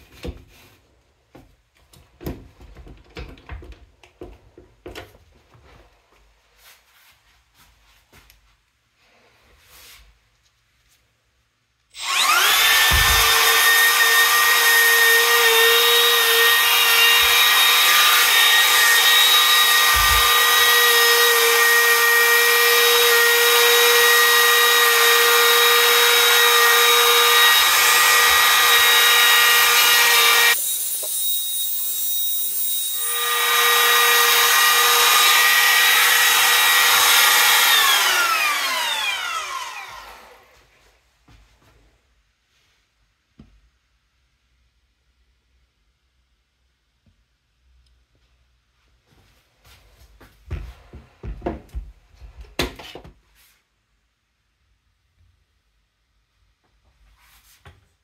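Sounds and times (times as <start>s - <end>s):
trim router whining: 11.9s - 40.6s.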